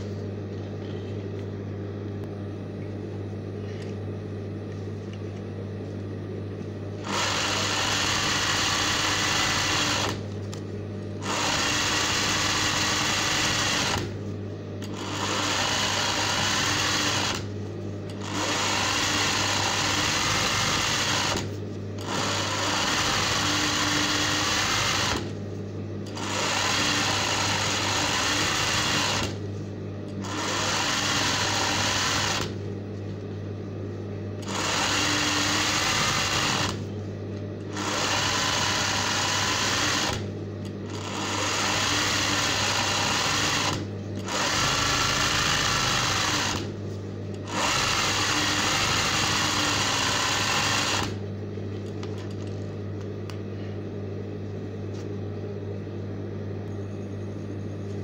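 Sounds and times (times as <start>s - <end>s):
low steady hum: 0.0s - 7.5s
sewing machine stitching: 7.0s - 10.2s, 11.2s - 14.2s, 14.8s - 17.5s, 18.1s - 25.4s, 26.1s - 29.4s, 30.2s - 32.6s, 34.4s - 36.8s, 37.7s - 40.2s, 40.9s - 46.7s, 47.4s - 51.2s.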